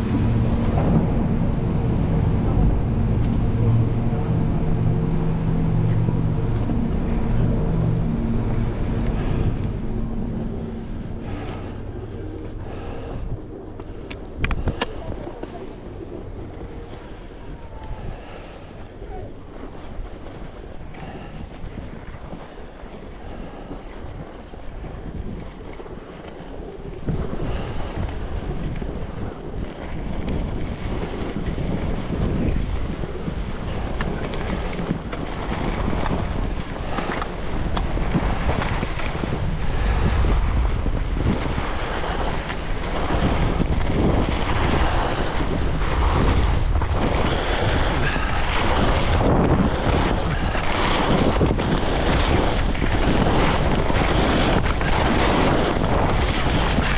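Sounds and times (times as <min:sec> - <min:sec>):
wind rushing over microphone: 0:00.0 - 0:56.9
skis carving on snow: 0:46.0 - 0:56.9.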